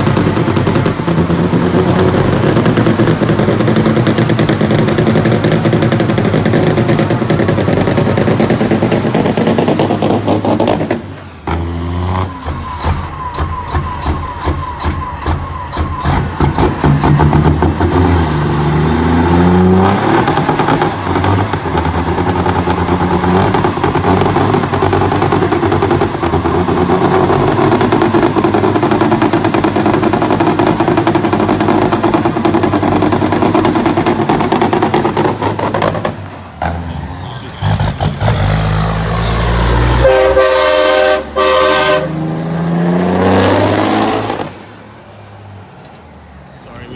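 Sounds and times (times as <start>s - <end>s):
diesel engine revving: 0.0s - 46.9s
truck pulling away under load: 0.0s - 46.9s
truck horn blasts: 39.2s - 42.4s.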